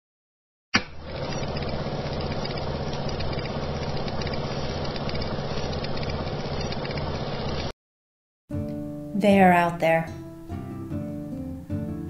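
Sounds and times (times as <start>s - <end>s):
low pulsing machine hum: 1.0s - 7.7s
light ticking clatter: 1.3s - 7.7s.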